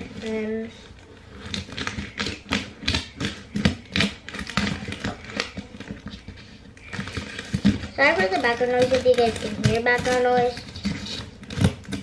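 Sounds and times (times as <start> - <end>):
scissors cutting packing tape: 6.8 - 12.0.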